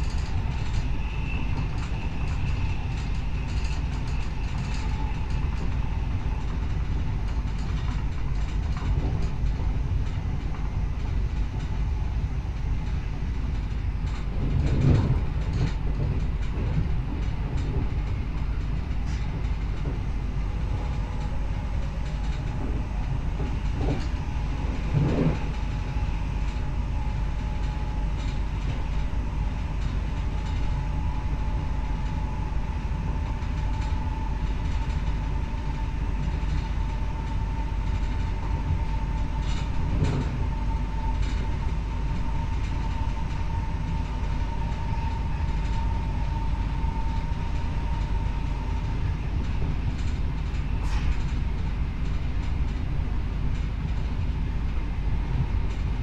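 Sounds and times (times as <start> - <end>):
train wheels rumbling on rail: 0.0 - 56.0.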